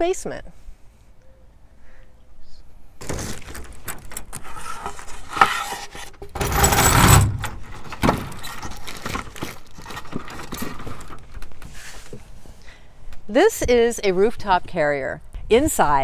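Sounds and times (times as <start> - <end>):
lid rattling and scraping open: 3.0 - 11.6.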